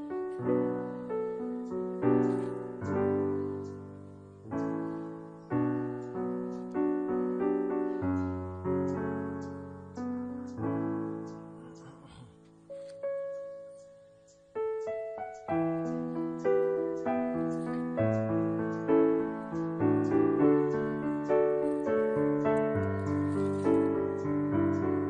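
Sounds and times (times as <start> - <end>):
slow solo piano music: 0.0 - 25.0.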